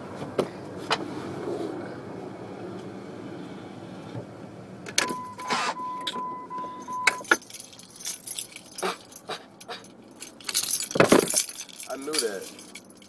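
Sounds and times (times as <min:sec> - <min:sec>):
car keys jangling: 0:04.9 - 0:13.0.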